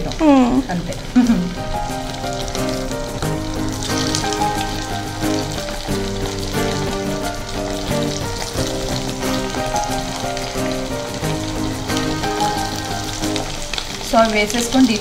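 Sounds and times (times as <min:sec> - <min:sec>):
chicken deep-frying in oil: 0:00.0 - 0:15.0
instrumental background music: 0:01.1 - 0:15.0.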